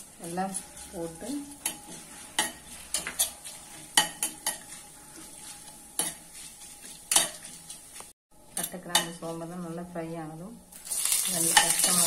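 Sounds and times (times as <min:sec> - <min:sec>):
spatula scraping a pot: 0:00.0 - 0:08.1
spices sizzling in oil: 0:00.0 - 0:09.8, 0:10.7 - 0:12.0.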